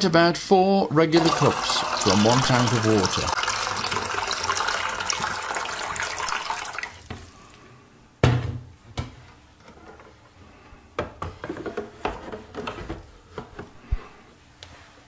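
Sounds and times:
water pouring into a tank: 1.2 - 7.1.

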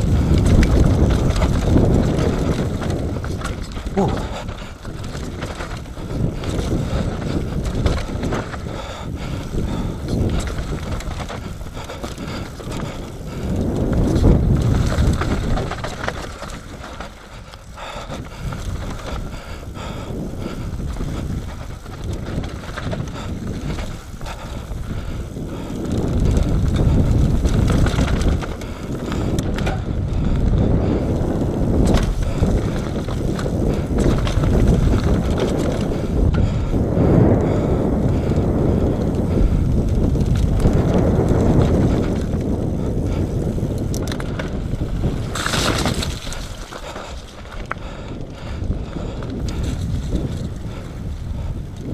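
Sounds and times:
bike knocks and rattles: 0.0 - 51.9
tyres rolling over dirt and stones: 0.0 - 51.9.

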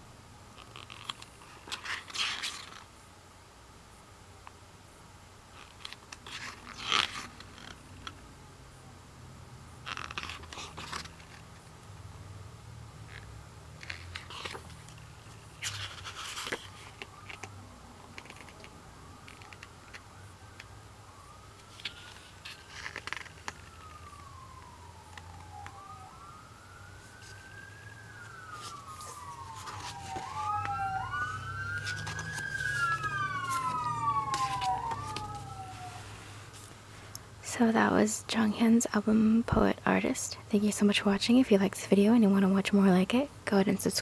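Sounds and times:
pages turning and paper rustles: 0.6 - 2.9, 5.5 - 8.2, 9.8 - 11.7, 13.1 - 20.0, 21.6 - 25.9, 27.0 - 36.9
emergency siren wailing: 15.7 - 36.5.

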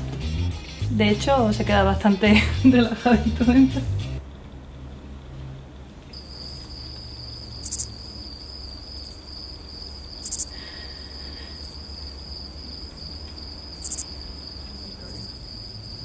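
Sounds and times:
cricket chirping: 4.2 - 16.0.

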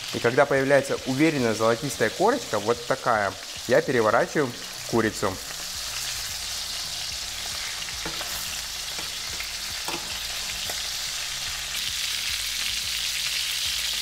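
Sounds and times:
chicken sizzling in frying pan: 0.0 - 14.0
metal tongs knocking: 9.0 - 10.3.

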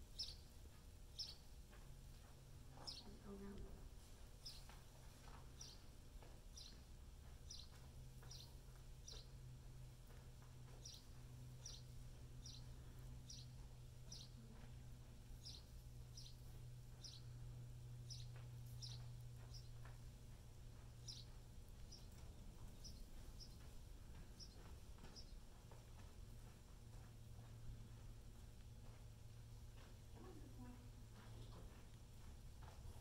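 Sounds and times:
low electrical hum: 0.0 - 33.0.

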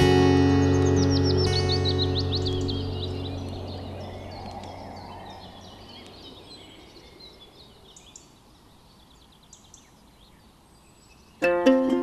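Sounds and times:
background music: 0.0 - 3.5
small birds chirping: 0.0 - 12.0.

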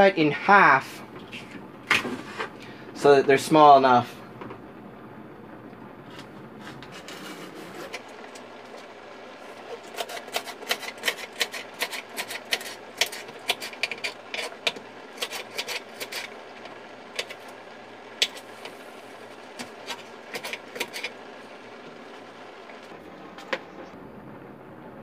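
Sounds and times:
knife chopping on cutting board: 9.8 - 16.3.

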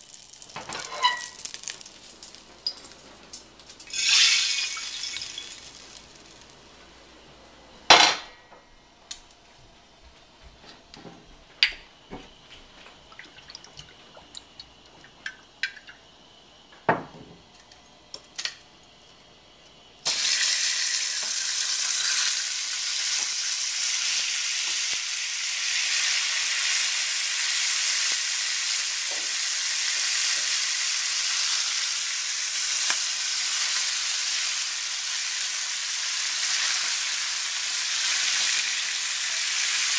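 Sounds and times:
hot oil sizzling in pan: 0.0 - 6.8, 20.0 - 39.9.

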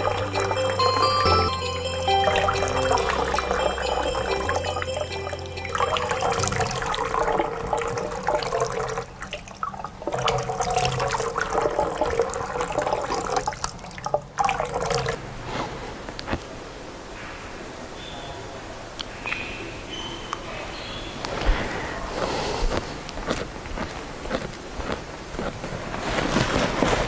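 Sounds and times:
water splashing: 5.8 - 15.4.

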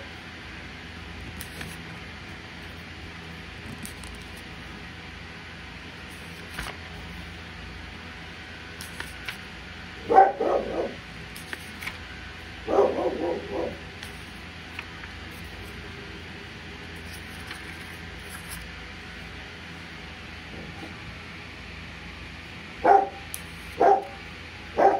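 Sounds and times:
low hum: 0.0 - 24.9
dog barking: 10.0 - 11.0, 12.6 - 13.8, 22.8 - 24.2.

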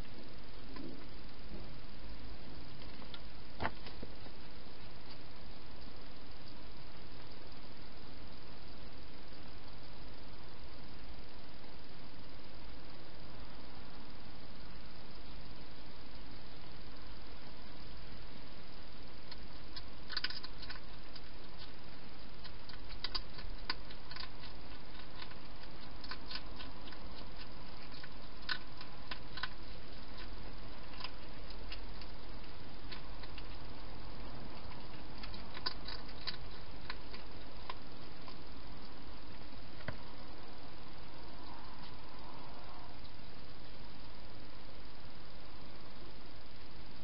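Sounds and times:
steady hiss: 0.0 - 47.0
hedgehog crunching food: 17.5 - 44.5.

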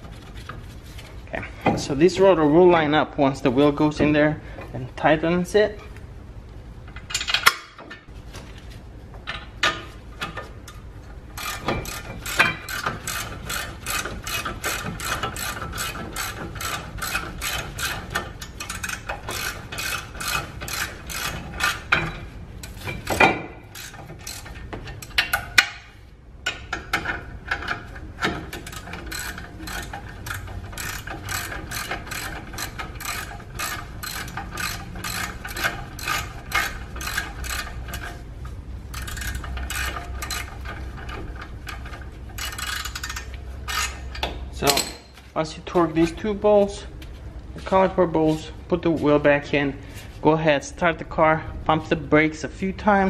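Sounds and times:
ratchet wrench clicking: 11.4 - 25.9, 26.5 - 38.1, 38.9 - 40.8, 41.7 - 45.0.

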